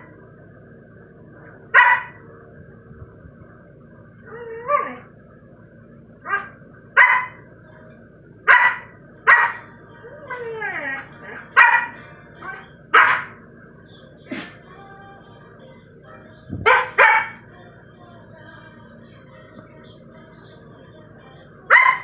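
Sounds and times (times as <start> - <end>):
dog barking: 1.7 - 2.2, 6.3 - 7.4, 8.5 - 9.7, 11.6 - 12.0, 12.9 - 13.4, 16.6 - 17.4, 21.7 - 22.0
dog whining: 4.2 - 5.1, 6.2 - 6.6, 9.4 - 13.3.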